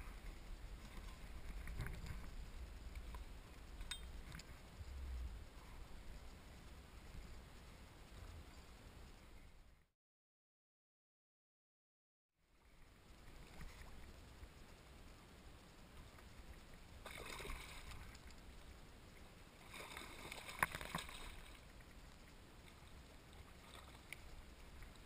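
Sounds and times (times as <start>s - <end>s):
water splashing against kayak: 16.3s - 25.0s.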